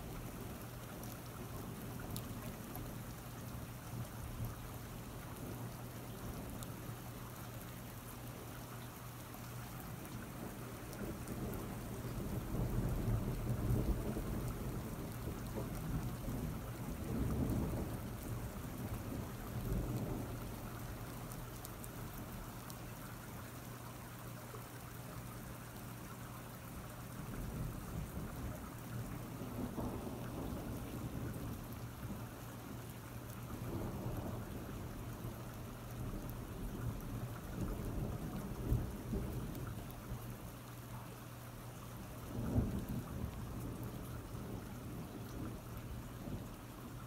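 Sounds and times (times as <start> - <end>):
steady rain: 0.0 - 47.0
rolling thunder: 10.5 - 20.8, 27.2 - 32.3, 33.5 - 40.2, 42.2 - 46.6.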